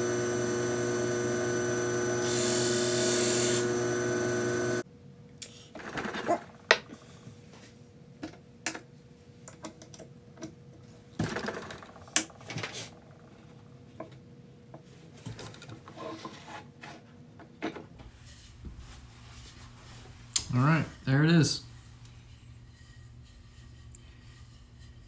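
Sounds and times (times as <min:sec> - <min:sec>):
faint steady lathe tone: 0:00.0 - 0:04.8
tool scraping wood on lathe: 0:00.0 - 0:04.8.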